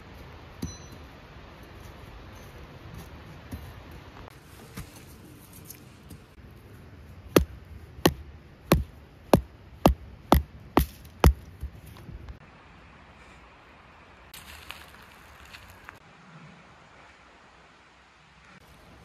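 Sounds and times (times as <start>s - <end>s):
rubber mallet striking tent stake: 7.4s - 11.8s.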